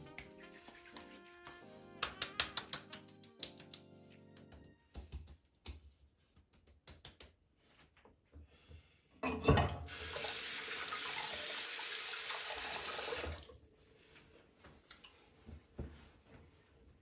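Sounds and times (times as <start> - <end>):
water running into sink: 9.9 - 13.6.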